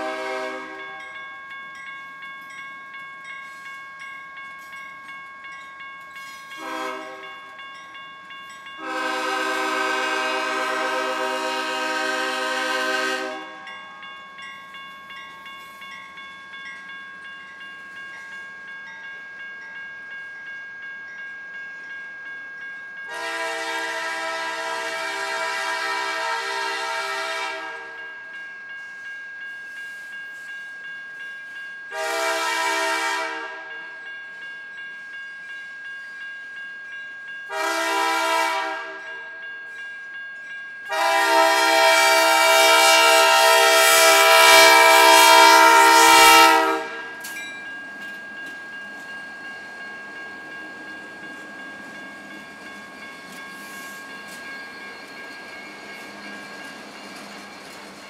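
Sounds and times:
locomotive air horn blasts: 0:00.0 - 0:00.9, 0:06.6 - 0:07.2, 0:08.8 - 0:13.7, 0:23.1 - 0:28.0, 0:31.9 - 0:33.7, 0:37.5 - 0:39.0, 0:40.9 - 0:47.1.

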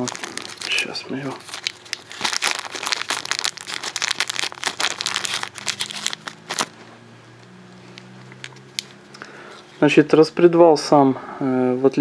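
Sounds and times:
plastic bag crinkling: 0:00.0 - 0:06.8.

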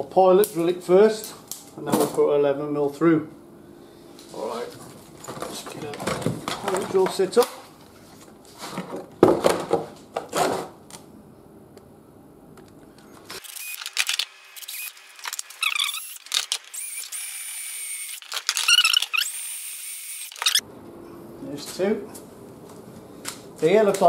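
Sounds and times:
cordless drill whine: 0:13.4 - 0:20.6.

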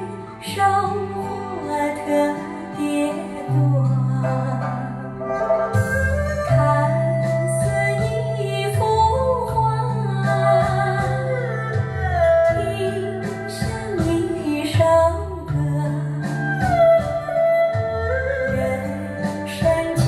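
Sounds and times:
song over loudspeakers: 0:00.0 - 0:20.0.

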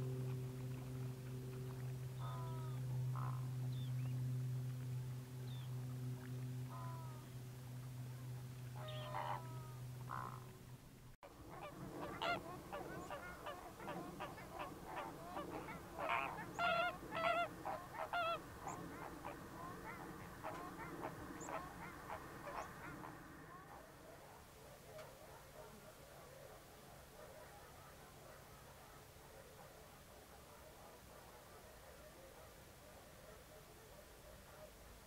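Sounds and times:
flamingos honking: 0:00.0 - 0:10.7, 0:11.5 - 0:24.0
steady low hum: 0:00.0 - 0:27.2.

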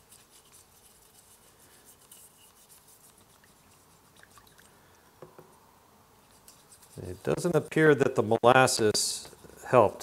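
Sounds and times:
toothbrush scrubbing metal: 0:00.0 - 0:04.6, 0:06.3 - 0:07.7
small water sounds: 0:01.2 - 0:05.2.

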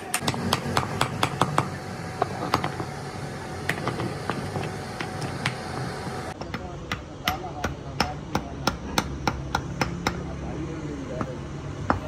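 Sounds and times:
hammer striking steel: 0:00.0 - 0:01.7, 0:06.4 - 0:10.4.

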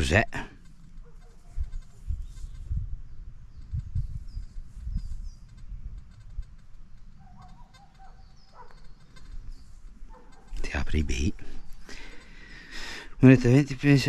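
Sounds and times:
high bird chirps: 0:01.1 - 0:10.7.

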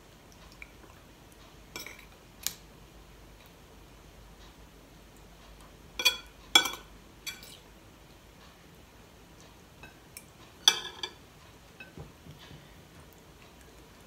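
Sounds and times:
cutlery clinking on ceramic plates: 0:01.8 - 0:02.1, 0:06.0 - 0:07.6, 0:09.8 - 0:11.2.

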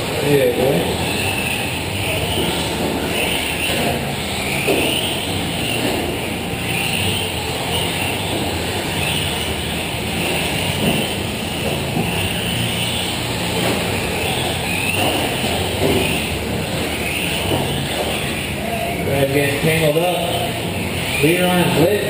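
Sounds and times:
track and hall noise: 0:00.0 - 0:22.0.

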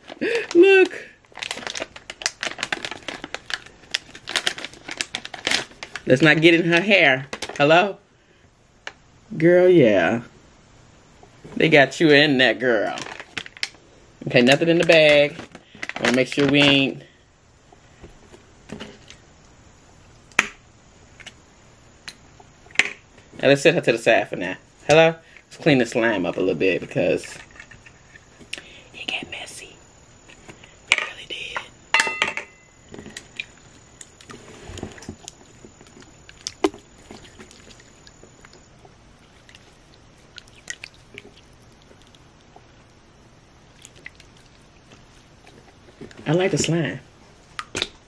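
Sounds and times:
slime popping: 0:35.0 - 0:38.6, 0:39.2 - 0:42.5
slime squelching and clicking: 0:35.0 - 0:38.6, 0:39.2 - 0:43.0, 0:43.7 - 0:45.6.

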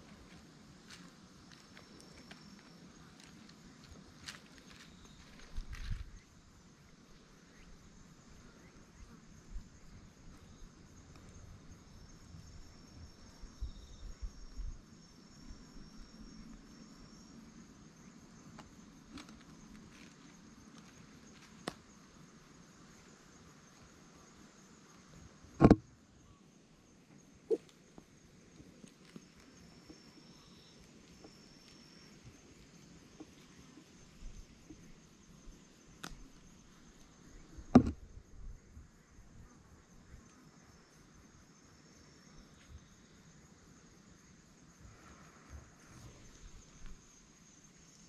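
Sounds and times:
sharp short knocks: 0:25.6 - 0:25.8.

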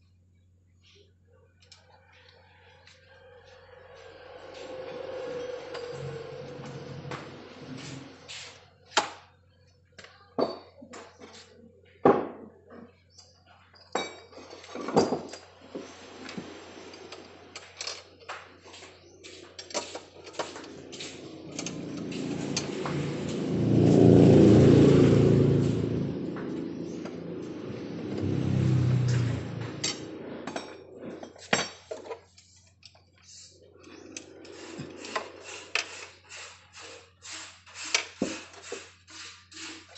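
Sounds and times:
vehicle passing: 0:02.6 - 0:08.9, 0:20.4 - 0:31.1.

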